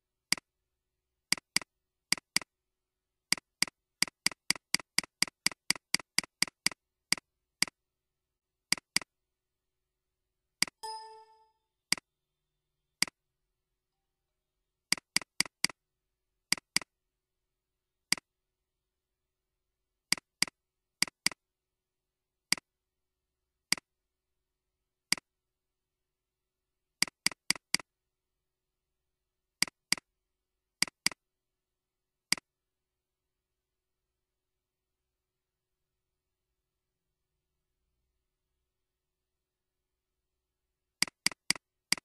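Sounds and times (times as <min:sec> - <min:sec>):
computer mouse clicks: 0:00.3 - 0:00.5, 0:01.3 - 0:02.5, 0:03.3 - 0:07.8, 0:08.7 - 0:09.1, 0:10.6 - 0:10.8, 0:11.9 - 0:12.1, 0:14.9 - 0:15.8, 0:16.5 - 0:16.9, 0:18.1 - 0:18.3, 0:20.1 - 0:21.4, 0:22.5 - 0:22.7, 0:23.7 - 0:23.9, 0:25.1 - 0:25.3, 0:27.0 - 0:27.9, 0:29.6 - 0:30.1, 0:30.8 - 0:31.2, 0:32.3 - 0:32.5, 0:41.0 - 0:42.0.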